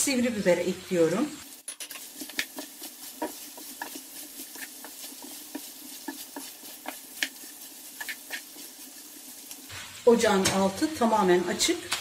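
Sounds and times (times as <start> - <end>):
food sizzling in a frying pan: 0.0 - 12.0
wooden spoon scraping a pan: 1.5 - 10.0.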